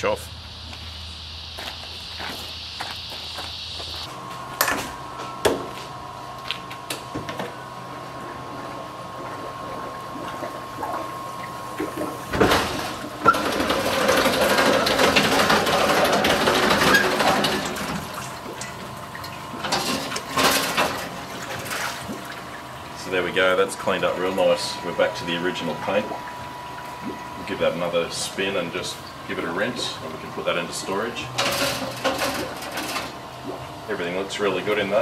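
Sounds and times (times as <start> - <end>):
water running and dripping: 15.8 - 28.1.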